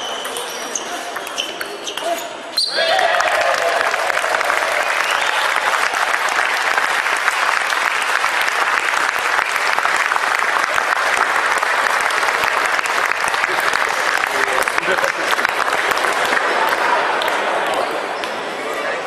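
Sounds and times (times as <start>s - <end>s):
spectators applauding: 2.8s - 17.9s.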